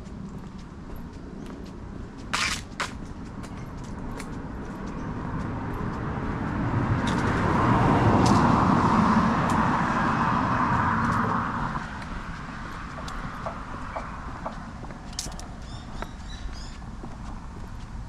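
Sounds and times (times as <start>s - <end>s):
car passing by: 4.4s - 14.8s.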